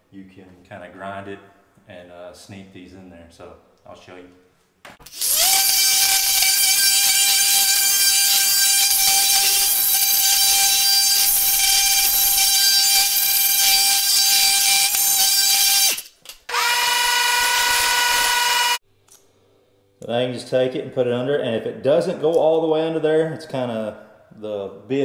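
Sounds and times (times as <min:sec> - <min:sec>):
multi-tool grinding whine: 0:05.0 - 0:18.8.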